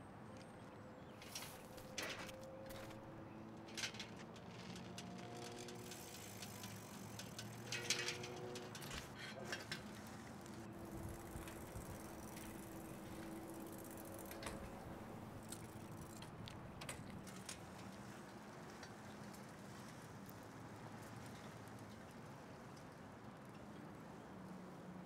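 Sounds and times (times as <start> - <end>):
bicycle clicks and ticks: 1.2 - 19.5.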